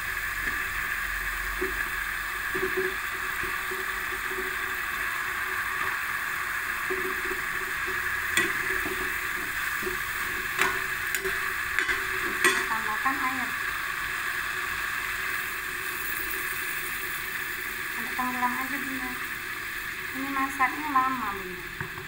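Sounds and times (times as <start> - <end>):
sauce simmering and sizzling in a wok: 0.0 - 22.0
metal spatula knocking on wok: 10.5 - 12.9.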